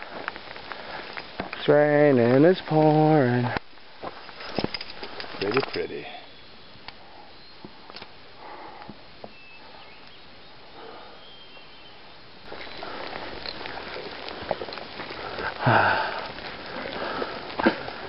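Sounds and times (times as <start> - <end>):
rain falling: 0.0 - 6.0, 12.3 - 18.0
footsteps on trail: 0.0 - 6.2, 12.4 - 18.0.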